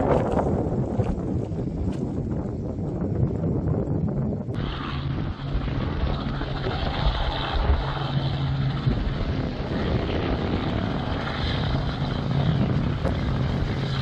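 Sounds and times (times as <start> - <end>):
engine humming: 0.0 - 14.0
broad rushing noise: 4.5 - 14.0.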